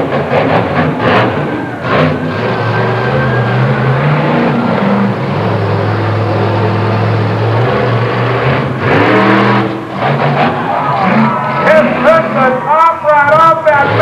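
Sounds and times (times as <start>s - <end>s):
engine revving: 0.0s - 14.0s
monster truck engines running: 0.0s - 14.0s.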